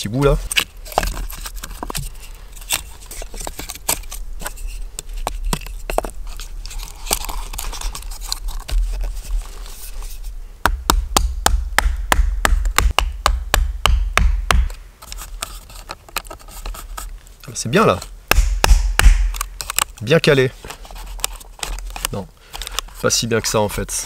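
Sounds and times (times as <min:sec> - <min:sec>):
wedges hammered into wood: 0:10.6 - 0:14.8, 0:18.3 - 0:19.5.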